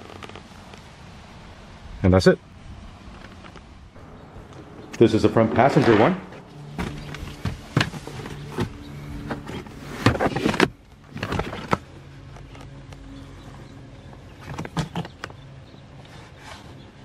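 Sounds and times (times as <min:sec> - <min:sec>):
steady low hum: 0:03.9 - 0:10.0.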